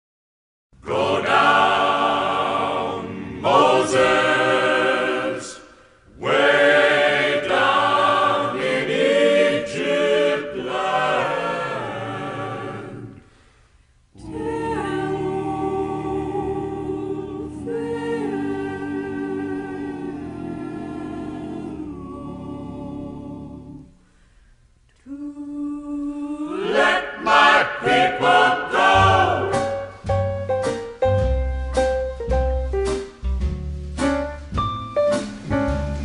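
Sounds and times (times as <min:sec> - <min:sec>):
choir singing unaccompanied: 0:00.8 - 0:13.3, 0:14.2 - 0:23.9, 0:25.1 - 0:29.9.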